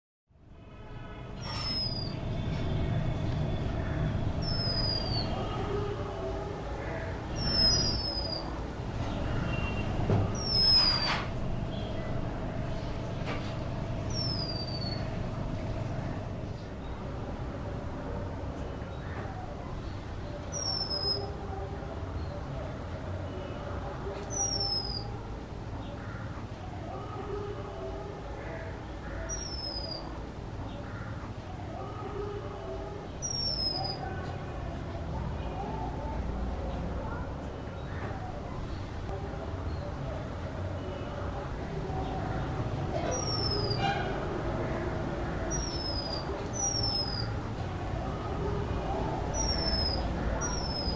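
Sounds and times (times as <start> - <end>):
low steady rumble: 11.3 - 18.0.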